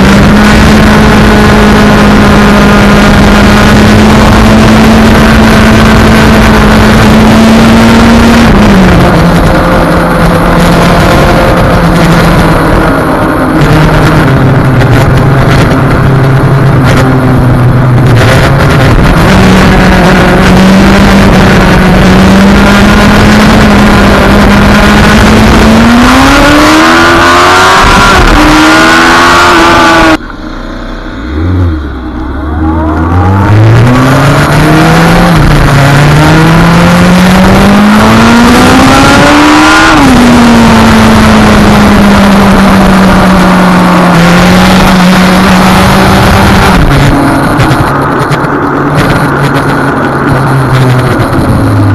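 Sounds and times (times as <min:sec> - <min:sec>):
motorcycle engine accelerating: 0:00.0 - 0:51.9
wind rush: 0:31.4 - 0:51.9.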